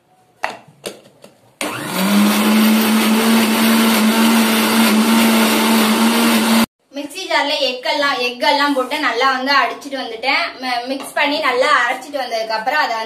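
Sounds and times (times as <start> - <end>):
mixer grinder whirring: 1.6 - 6.7.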